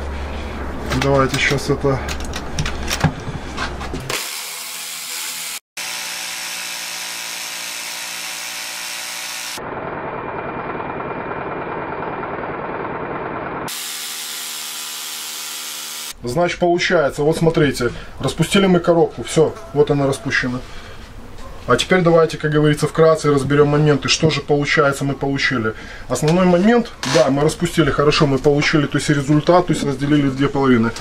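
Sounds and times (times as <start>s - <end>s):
electric jigsaw sawing wood: 4.1s - 9.6s, 13.7s - 16.2s.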